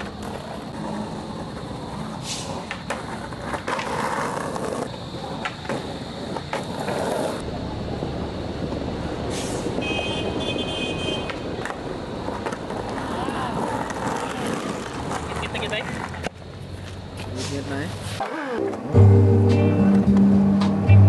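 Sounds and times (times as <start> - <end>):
skateboard clacking on ground: 0.0 - 8.1, 11.2 - 17.4
skateboard wheels rolling on concrete: 0.0 - 21.0
traffic noise: 0.0 - 21.0.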